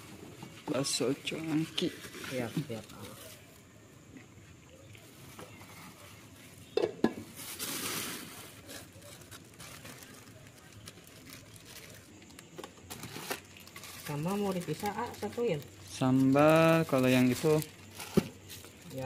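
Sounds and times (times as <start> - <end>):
plastic bag rustle: 0.0 - 3.6, 5.0 - 19.0
kitchenware clatter: 6.8 - 7.3.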